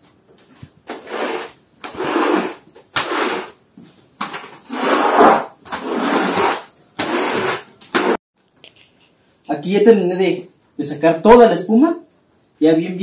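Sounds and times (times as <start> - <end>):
squeegee scraping wet concrete: 0.9 - 3.6, 4.2 - 8.2.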